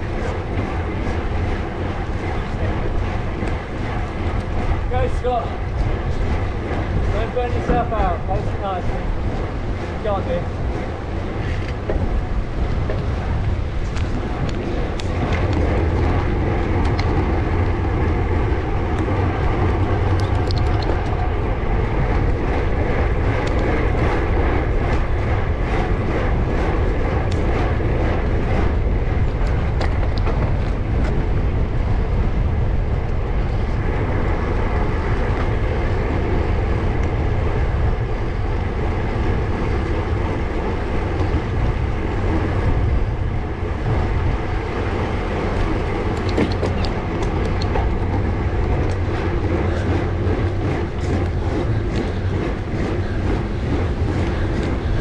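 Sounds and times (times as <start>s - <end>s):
bicycle tyre noise on road: 0.0s - 55.0s
wind across microphone: 0.0s - 55.0s
faint clicks: 20.1s - 21.2s.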